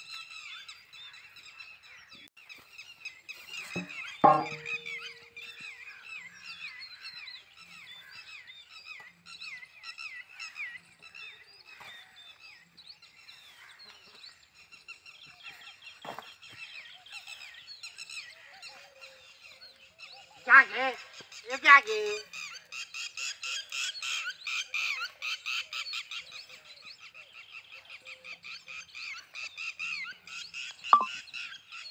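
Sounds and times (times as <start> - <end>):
knock: 3.8 - 5.2.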